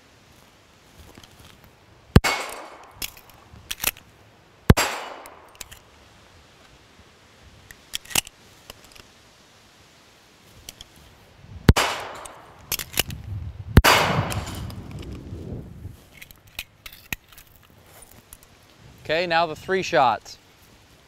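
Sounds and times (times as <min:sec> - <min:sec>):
pistol shots with echo: 0:02.2 - 0:02.9, 0:04.7 - 0:05.5, 0:11.7 - 0:12.5, 0:13.8 - 0:14.6
metallic clicks of pistol reload: 0:02.4 - 0:04.0, 0:05.0 - 0:05.9, 0:07.7 - 0:09.1, 0:12.0 - 0:13.2, 0:16.2 - 0:17.7.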